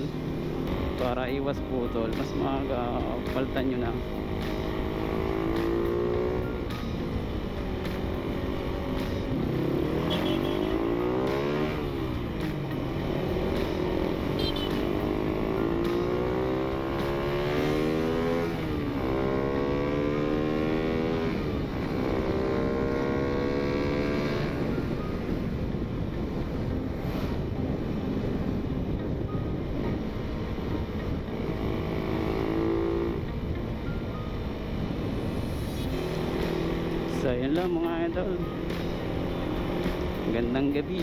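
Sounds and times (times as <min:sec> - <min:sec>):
motorcycle engine accelerating: 0:00.0 - 0:41.0
wind rushing past microphone: 0:20.5 - 0:41.0.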